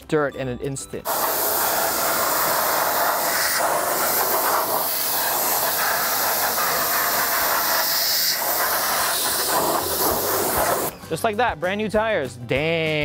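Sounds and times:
pressure washer spraying metal wheel: 1.1 - 10.9.

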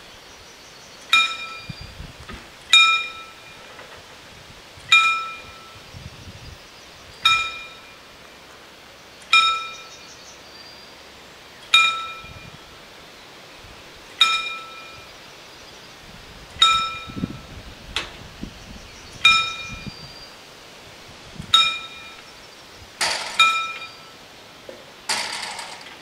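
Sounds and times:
level crossing warning bell: 1.1 - 1.7, 2.7 - 3.7, 4.9 - 5.8, 7.2 - 8.1, 9.3 - 10.0, 11.8 - 12.6, 14.2 - 15.1, 16.6 - 17.3, 19.2 - 19.9, 21.6 - 22.3, 23.4 - 24.2.

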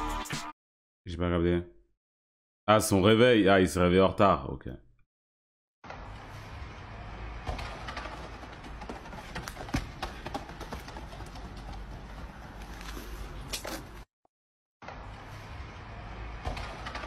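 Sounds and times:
running footsteps on street: 7.3 - 14.0.

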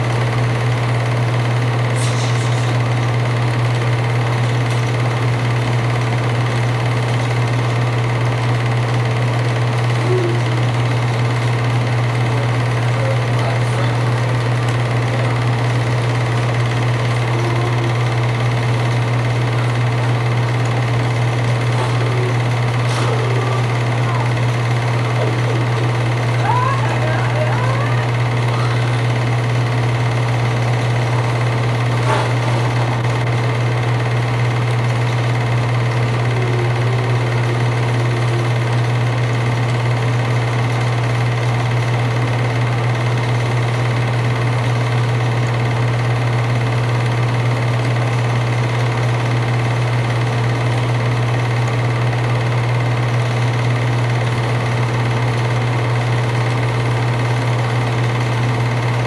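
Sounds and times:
low hum: 0.0 - 45.0
film projector whirring and clattering: 0.0 - 59.0.

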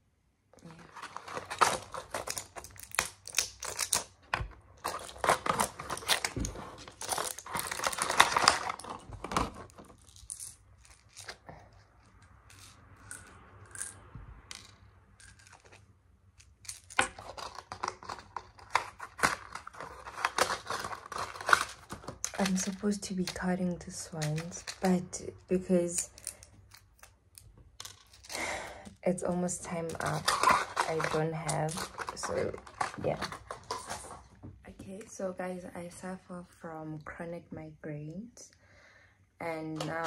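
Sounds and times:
medicine packaging crinkling: 0.6 - 11.5, 15.2 - 34.3.

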